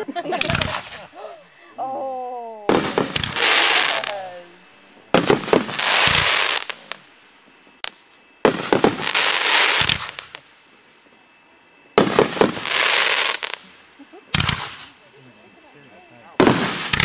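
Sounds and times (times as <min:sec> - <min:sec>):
firework crackling: 0:00.2 - 0:01.2, 0:02.4 - 0:11.2, 0:11.9 - 0:17.0
firework bang: 0:00.4 - 0:01.1, 0:02.7 - 0:04.2, 0:05.1 - 0:06.8, 0:07.8 - 0:10.4, 0:12.0 - 0:13.6, 0:14.3 - 0:15.0, 0:16.4 - 0:17.0.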